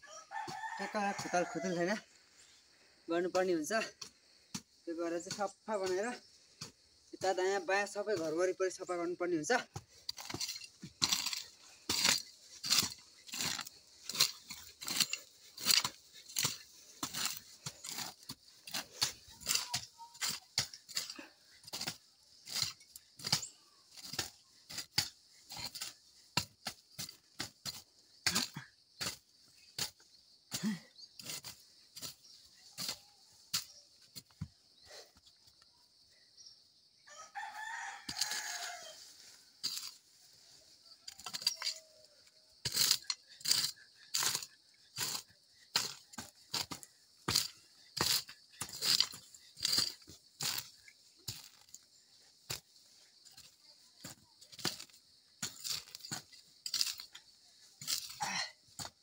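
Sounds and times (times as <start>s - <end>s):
rooster crowing: 0.0s - 2.0s, 37.1s - 39.2s
hoes chopping and scraping soil: 0.1s - 59.0s.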